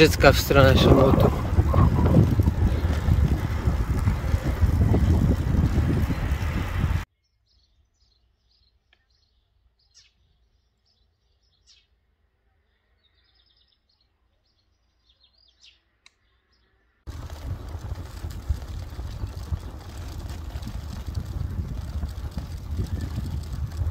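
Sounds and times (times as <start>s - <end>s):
wind and bicycle riding noise: 0.0s - 7.1s, 17.1s - 23.9s
faint birdsong chirps: 7.1s - 17.9s.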